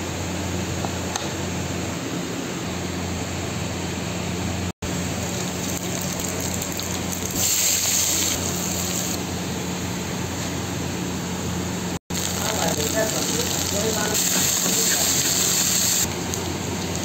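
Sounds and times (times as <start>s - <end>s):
hot oil sizzling: 4.8s - 17.0s.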